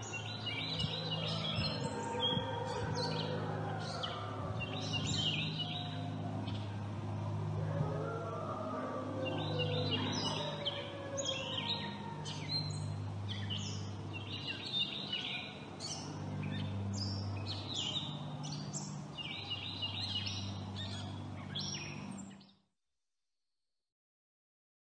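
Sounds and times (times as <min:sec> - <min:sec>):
songbirds chirping and singing: 0:00.0 - 0:22.5.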